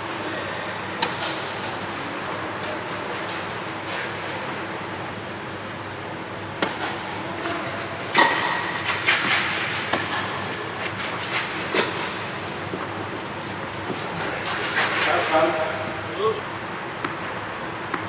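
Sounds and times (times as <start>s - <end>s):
tennis ball struck by rackets: 6.6s - 7.1s, 8.1s - 10.4s.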